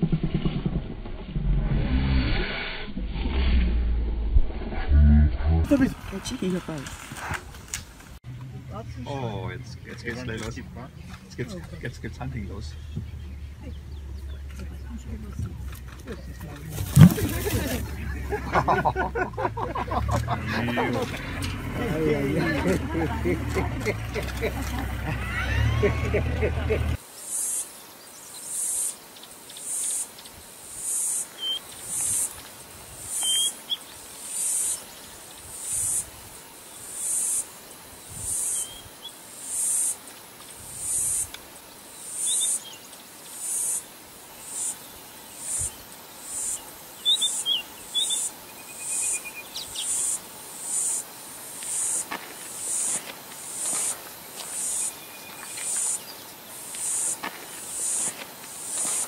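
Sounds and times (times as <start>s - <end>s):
insects calling in pulses: 13.2s - 59.0s
steady hiss: 26.9s - 59.0s
bird chirps: 30.9s - 32.3s, 33.1s - 36.1s, 38.3s - 40.0s, 42.1s - 43.8s, 44.4s - 51.0s.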